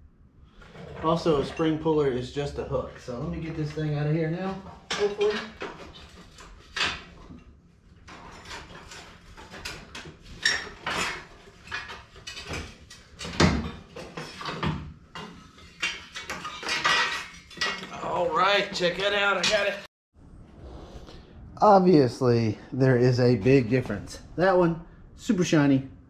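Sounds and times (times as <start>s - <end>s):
metal clanks and knocks: 4.4s - 7.4s, 8.0s - 18.0s.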